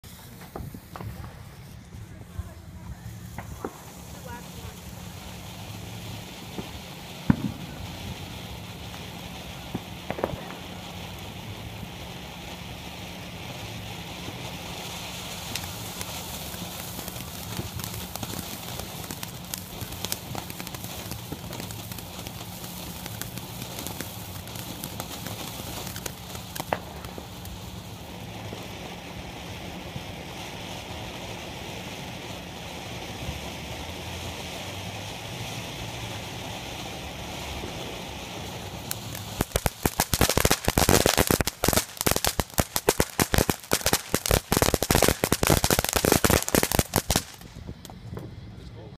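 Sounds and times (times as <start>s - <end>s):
firework pops: 0.0s - 11.2s, 14.2s - 28.7s, 38.8s - 48.8s
firework crackles: 0.0s - 48.9s
fountain firework hissing sparks: 0.0s - 48.9s.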